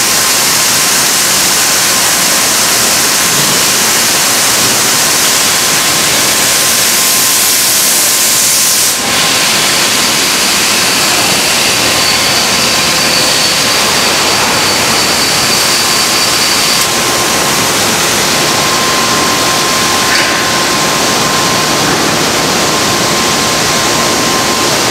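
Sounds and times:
machinery rushing hiss: 0:00.0 - 0:24.9
thin steady whistle: 0:10.0 - 0:17.0
higher whistle: 0:10.7 - 0:16.8.

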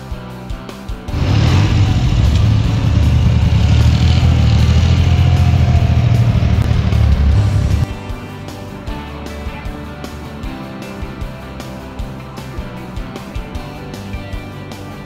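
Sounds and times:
background music: 0:00.0 - 0:15.0
motorcycle engine running: 0:01.1 - 0:08.8.

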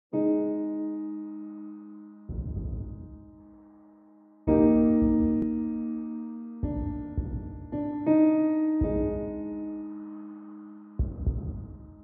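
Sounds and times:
sustained keyboard chords: 0:02.3 - 0:03.6, 0:04.5 - 0:10.0
low rumbling texture: 0:02.3 - 0:03.8, 0:04.5 - 0:08.0, 0:11.0 - 0:12.0.

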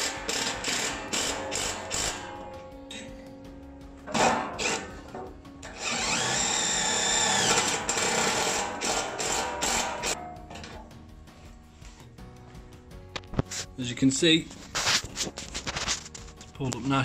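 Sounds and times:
cordless drill driving screws: 0:04.6 - 0:04.9, 0:05.6 - 0:10.2.

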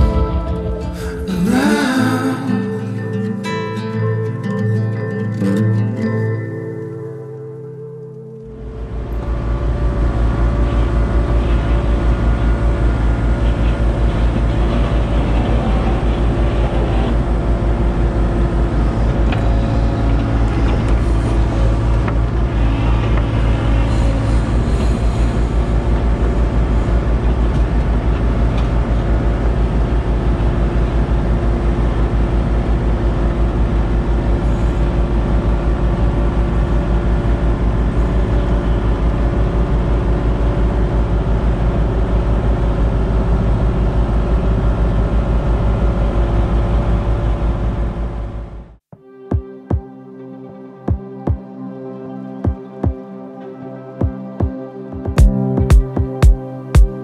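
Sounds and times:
excavator diesel engine running: 0:08.4 - 0:48.8.

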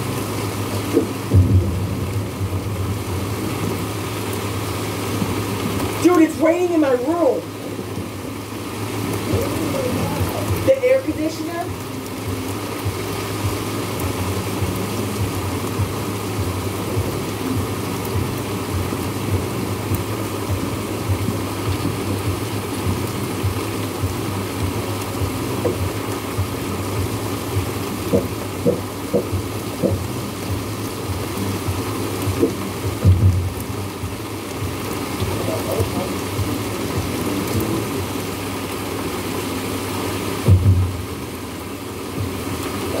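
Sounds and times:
heavy rain falling: 0:00.0 - 0:43.0
deep low rumble: 0:01.1 - 0:05.8
soft taps: 0:28.1 - 0:30.0.

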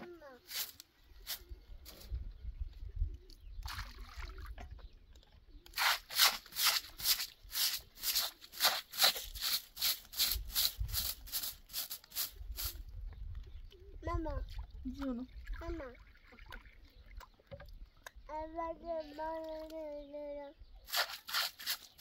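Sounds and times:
broom sweeping dusty ground: 0:00.2 - 0:02.1, 0:05.8 - 0:12.8, 0:20.9 - 0:22.0.

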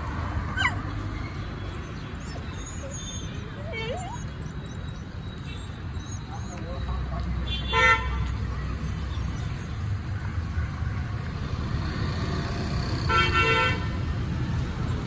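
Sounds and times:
low rumble of street traffic: 0:00.0 - 0:15.0
vehicle horn beeping: 0:07.4 - 0:08.2, 0:13.1 - 0:14.0.

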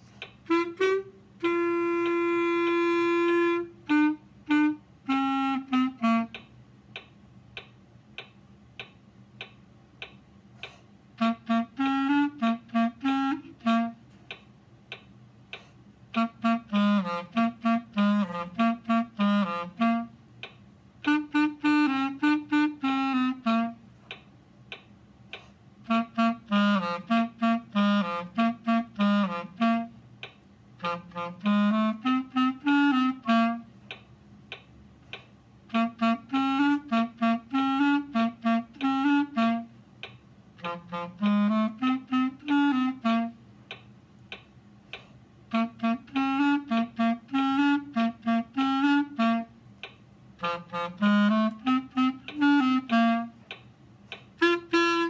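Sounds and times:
solo clarinet playing: 0:00.0 - 0:06.5, 0:11.2 - 0:14.1, 0:16.1 - 0:20.2, 0:21.0 - 0:23.9, 0:25.8 - 0:30.1, 0:30.8 - 0:33.8, 0:35.6 - 0:39.9, 0:40.5 - 0:43.5, 0:45.5 - 0:49.7, 0:50.4 - 0:53.5, 0:54.4 - 0:55.0.

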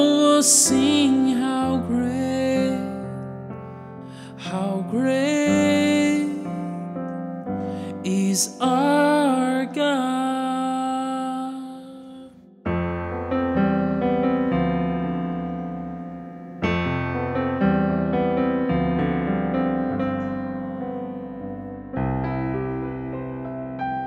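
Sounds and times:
slow sustained piano chords: 0:12.7 - 0:24.0.

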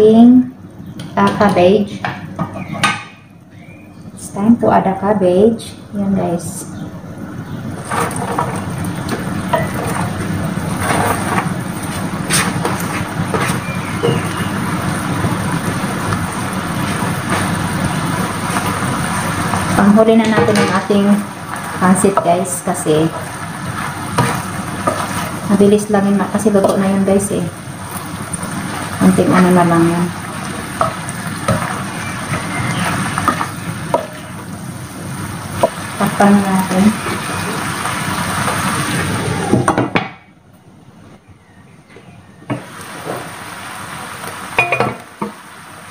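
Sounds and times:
spatula knocking and scraping pan: 0:07.8 - 0:10.1, 0:19.5 - 0:22.4, 0:24.1 - 0:25.4
food sizzling in a pan: 0:08.6 - 0:39.4, 0:42.5 - 0:45.9.

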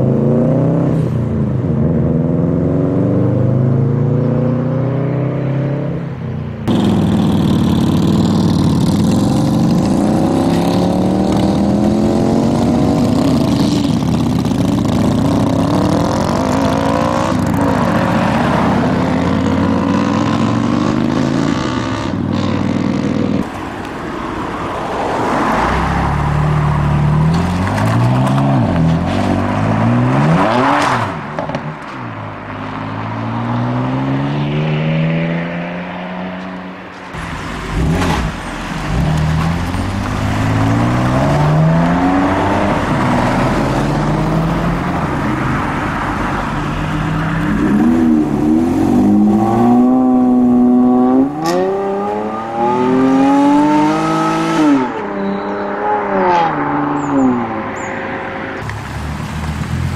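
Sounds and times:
car accelerating: 0:00.0 - 0:31.6, 0:37.2 - 0:59.9
car revving through gears: 0:06.6 - 0:23.4, 0:25.2 - 0:31.6, 0:37.2 - 0:45.5, 0:47.1 - 0:58.7
motorcycles pulling off: 0:06.6 - 0:24.4, 0:37.2 - 0:55.6.

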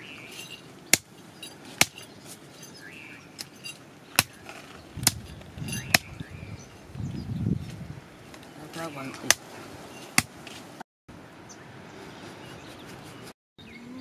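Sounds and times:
machete chopping meat on wood: 0:04.2 - 0:04.4.

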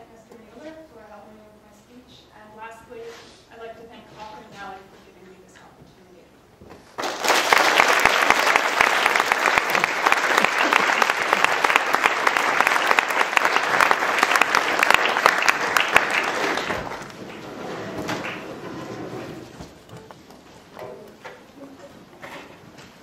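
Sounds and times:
audience applauding: 0:07.0 - 0:18.7.

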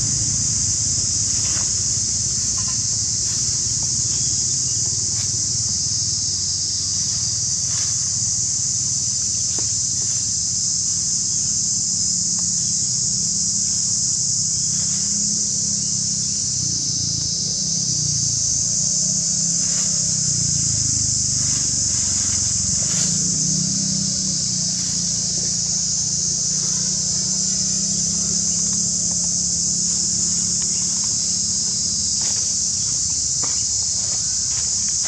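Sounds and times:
low steady rumble: 0:00.0 - 0:10.0
dry leaves rustling: 0:00.0 - 0:12.6, 0:18.4 - 0:35.0
high-pitched insect chorus: 0:00.0 - 0:35.0.

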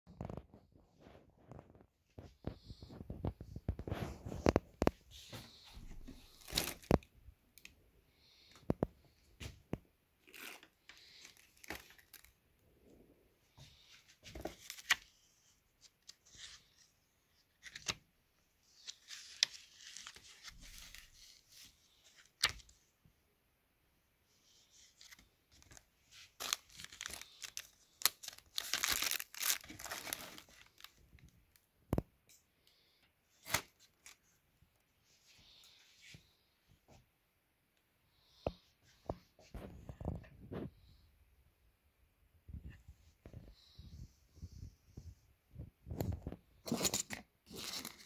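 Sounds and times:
paper and plastic packaging rustling: 0:00.1 - 0:07.1, 0:10.2 - 0:12.4, 0:24.6 - 0:31.6.

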